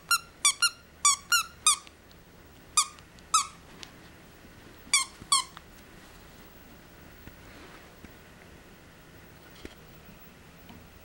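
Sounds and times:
squeaky toy squeaking: 0.0 - 1.9, 2.8 - 3.6, 4.9 - 5.6.

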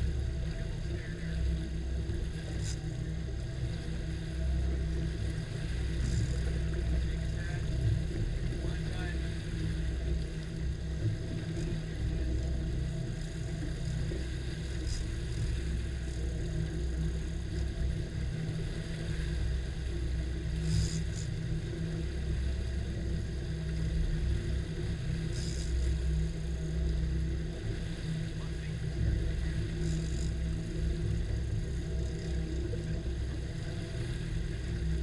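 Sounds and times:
outboard motors rumbling: 0.0 - 35.0.

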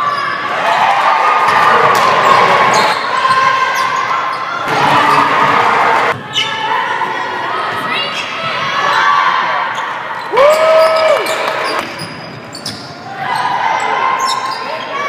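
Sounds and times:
sneaker squeaks: 1.5 - 5.4, 6.1 - 6.7, 8.0 - 15.0.

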